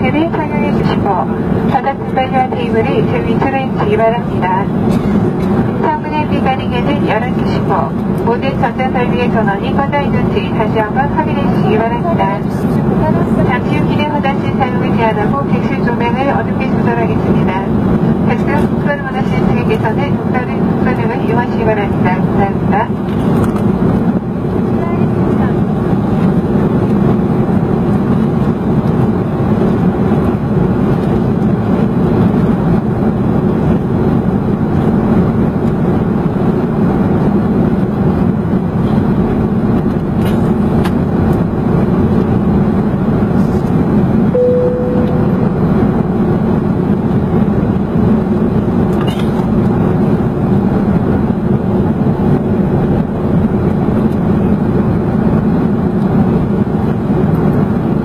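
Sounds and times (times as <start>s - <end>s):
airliner cabin engine rush: 0.0s - 58.0s
single chime tone: 44.4s - 45.7s.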